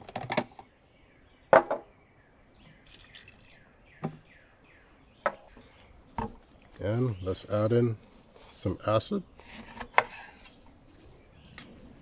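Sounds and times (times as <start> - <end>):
birds chirping faintly: 0.0 - 12.0
liquid trickling and dripping: 2.6 - 3.8.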